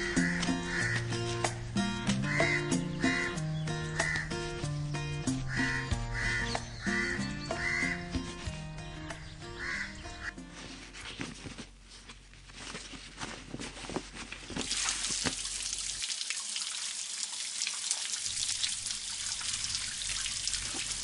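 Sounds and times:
soft rustles and knocks: 0:10.6 - 0:15.4
hands being rubbed and washed: 0:14.6 - 0:21.0
tap water running into sink: 0:14.6 - 0:21.0.

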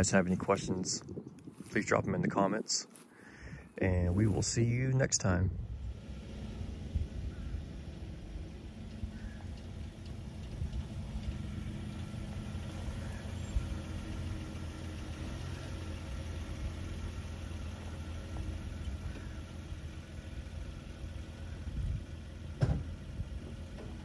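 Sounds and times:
truck engine running slowly: 0:05.6 - 0:24.0.

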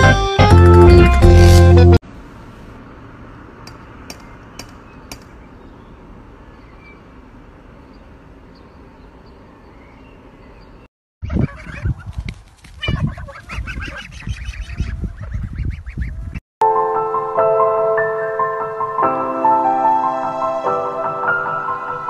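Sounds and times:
loud music: 0:00.0 - 0:02.0
outdoor background noise: 0:02.0 - 0:16.4.

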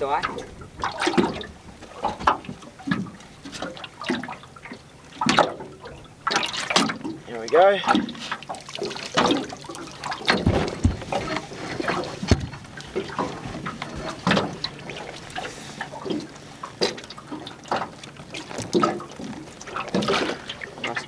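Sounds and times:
water splashing and trickling: 0:00.0 - 0:21.0
gear knocking against boat hull: 0:10.2 - 0:11.5.

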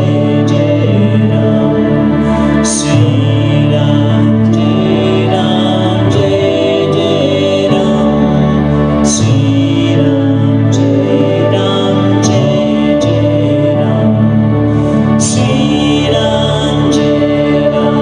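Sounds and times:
acoustic guitar: 0:00.0 - 0:18.0
long held low notes: 0:00.0 - 0:18.0
woman singing: 0:15.2 - 0:18.0.

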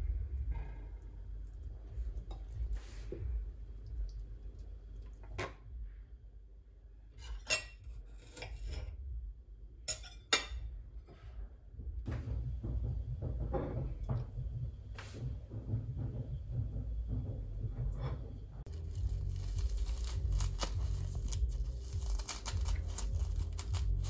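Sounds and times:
low steady hum: 0:00.0 - 0:24.0
knife clinking on plate: 0:09.9 - 0:10.6.

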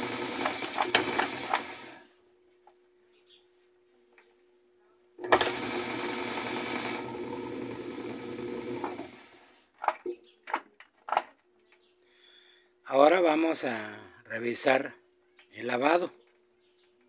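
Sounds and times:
washing machine spinning: 0:00.0 - 0:02.1, 0:05.2 - 0:09.6.

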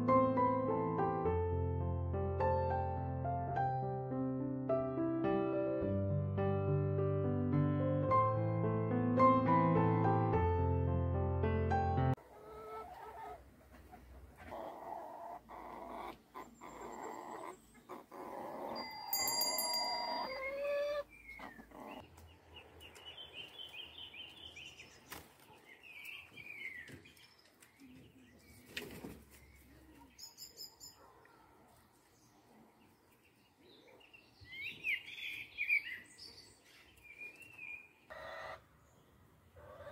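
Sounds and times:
hens clucking: 0:12.2 - 0:18.8, 0:20.0 - 0:22.2, 0:39.6 - 0:39.9
small birds chirping: 0:12.4 - 0:19.3, 0:19.9 - 0:39.9.

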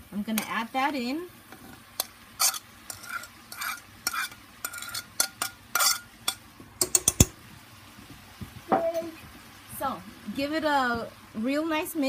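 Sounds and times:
utensil scraping in a pan: 0:01.5 - 0:07.3
utensil clicking against pan: 0:02.0 - 0:07.3.

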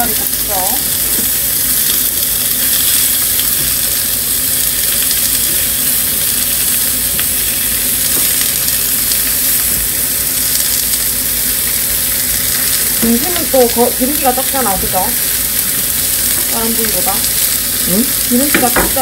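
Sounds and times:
meat sizzling in a frying pan: 0:00.0 - 0:19.0.

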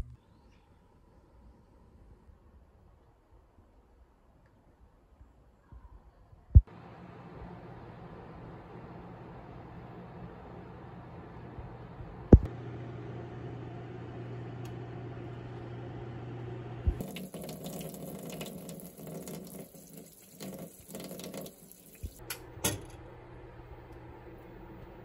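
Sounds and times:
oven humming: 0:06.7 - 0:20.2, 0:20.8 - 0:25.0
tap water running: 0:16.8 - 0:22.9.

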